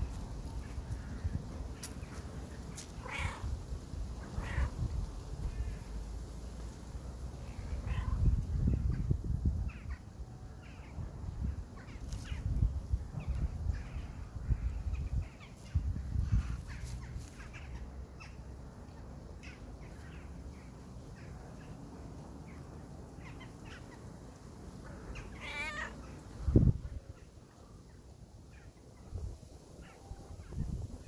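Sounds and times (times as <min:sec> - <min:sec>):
crows cawing: 0:03.0 - 0:03.5, 0:04.4 - 0:04.8, 0:25.1 - 0:26.0.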